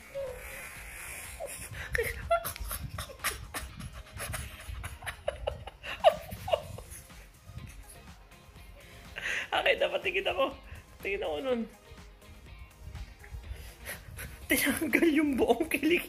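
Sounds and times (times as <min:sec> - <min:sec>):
man crying out and laughing: 0:01.4 - 0:06.8.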